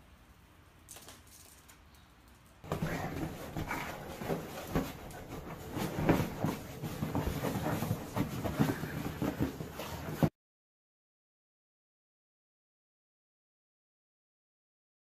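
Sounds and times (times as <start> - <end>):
dog rubbing on leather couch: 2.7 - 10.3.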